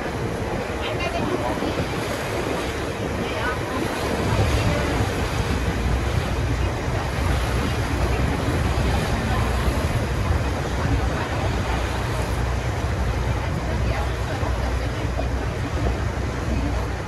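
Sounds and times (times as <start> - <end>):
boat engine rumbling: 0.0 - 17.0
water rushing past hull: 0.0 - 17.0
wind on microphone: 0.0 - 17.0.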